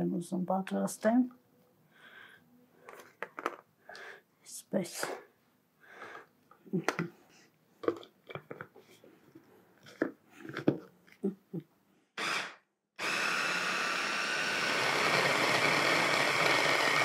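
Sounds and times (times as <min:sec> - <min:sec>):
plastic clicks and knocks: 0:02.9 - 0:03.6
hand blender motor chopping: 0:12.2 - 0:17.0.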